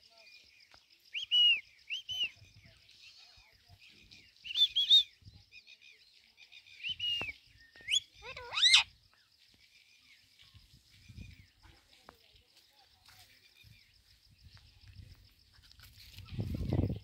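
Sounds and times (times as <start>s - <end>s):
parakeet chirping and squawking: 8.2s - 8.8s.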